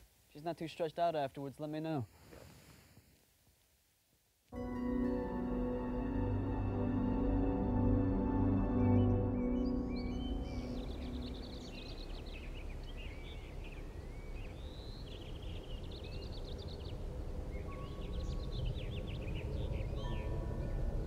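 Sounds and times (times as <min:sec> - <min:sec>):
low background rumble: 0:04.7 - 0:21.0
songbirds chirping and trilling: 0:05.4 - 0:21.0.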